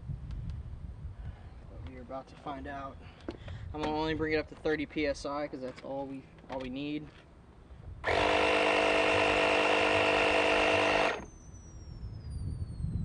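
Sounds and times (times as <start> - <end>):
electric air compressor pumping: 8.0 - 11.3.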